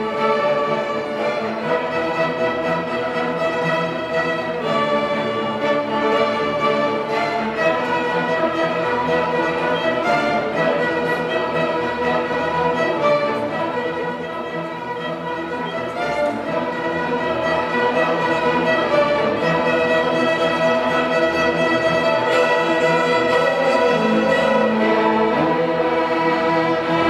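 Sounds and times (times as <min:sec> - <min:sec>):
string orchestra bowed chords: 0:00.0 - 0:27.0.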